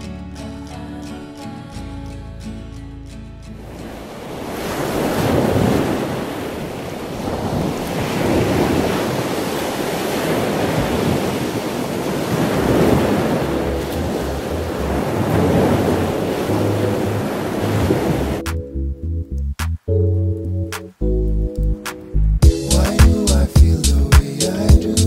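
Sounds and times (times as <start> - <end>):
small surf waves breaking: 3.5 - 18.4
wind rumbling on microphone: 3.7 - 18.4.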